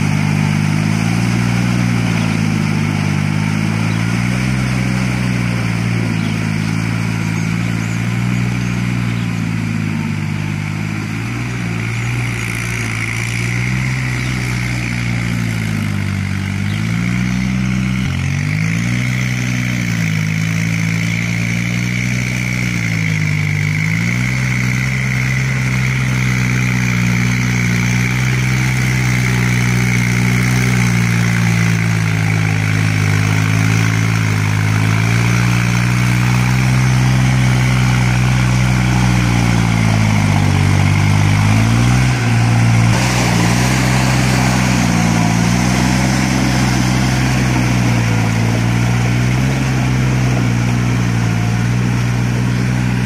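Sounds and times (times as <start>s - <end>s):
rotary tiller in mud: 0.0s - 53.0s
tractor diesel engine under load: 0.0s - 53.0s.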